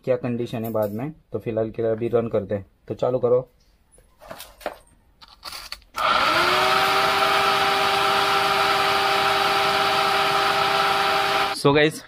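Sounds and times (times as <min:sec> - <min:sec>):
electric cooling fan whine: 0:06.0 - 0:11.6.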